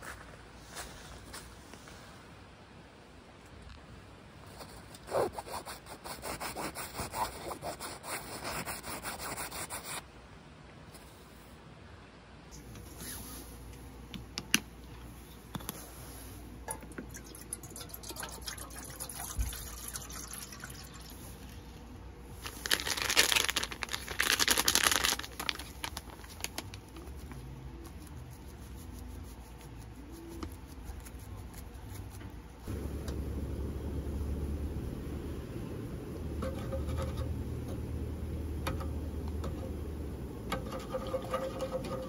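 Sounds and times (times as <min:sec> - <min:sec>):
foil sachet crinkling and tearing: 0:22.4 - 0:27.4.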